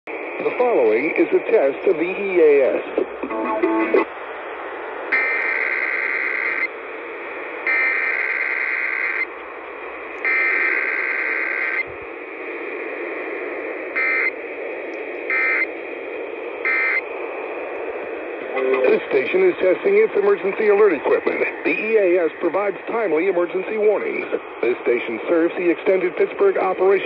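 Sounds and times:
radio static hiss: 0.1s - 27.0s
buzzy digital data bursts: 5.1s - 6.7s, 10.3s - 11.9s, 15.3s - 15.7s.

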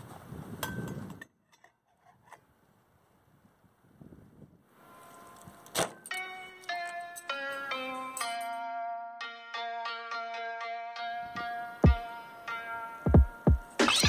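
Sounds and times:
plucked zither-like music: 4.9s - 13.9s.

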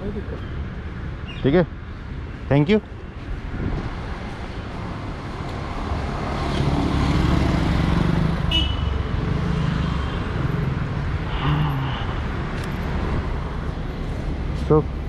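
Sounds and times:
vehicle engine passing: 4.8s - 8.5s.

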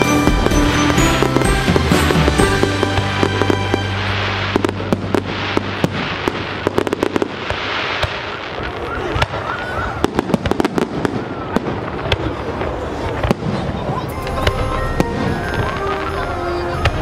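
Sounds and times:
background music: 0.0s - 6.9s, 14.1s - 17.0s
fireworks bangs and pops: 0.0s - 16.2s.

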